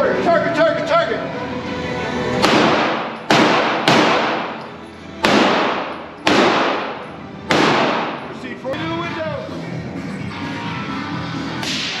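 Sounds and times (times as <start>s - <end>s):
pistol shots echoing: 2.4s - 8.4s.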